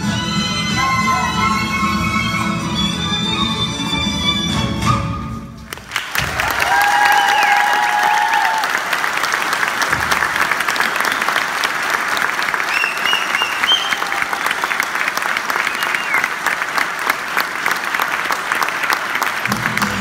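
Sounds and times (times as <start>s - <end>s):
folk band playing: 0.0s - 5.7s
audience applauding: 5.7s - 20.0s.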